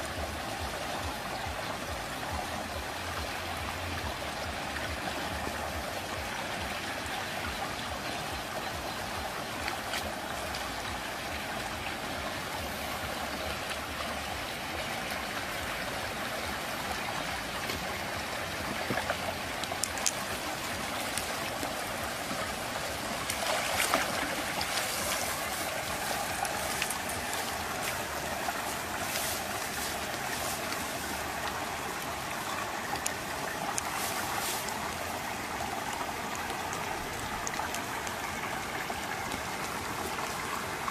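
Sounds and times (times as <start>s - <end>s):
flowing water: 0.0s - 40.9s
fish splashing in water: 18.5s - 40.9s.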